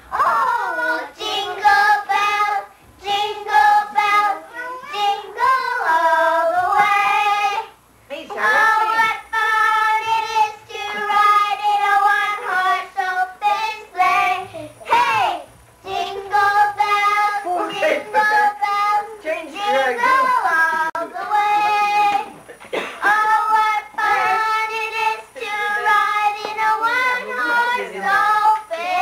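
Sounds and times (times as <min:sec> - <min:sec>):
child singing: 0:00.1 - 0:22.4, 0:23.0 - 0:29.0.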